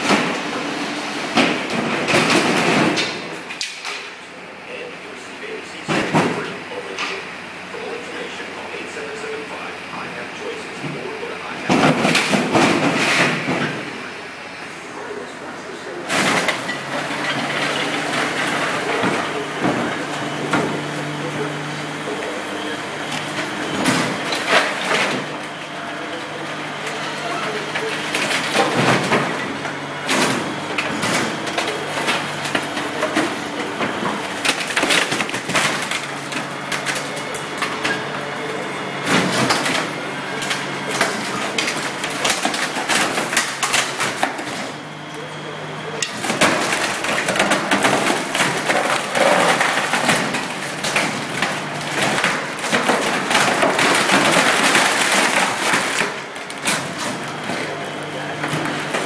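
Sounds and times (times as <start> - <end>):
wood cracking and splintering: 23.1 - 38.0, 46.0 - 59.0.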